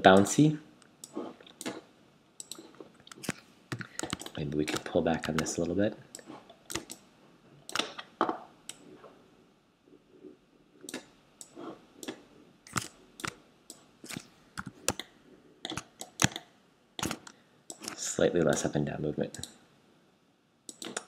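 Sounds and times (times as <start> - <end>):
mouse and keyboard clicks: 10.8 - 18.7, 20.7 - 21.0.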